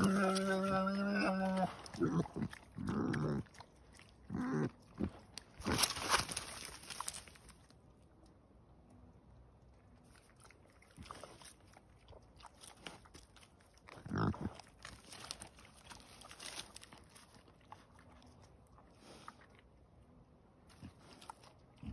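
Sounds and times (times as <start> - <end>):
boar grunt: 0.0 - 6.0, 13.9 - 15.4
boars crunching and chewing food: 0.0 - 21.9.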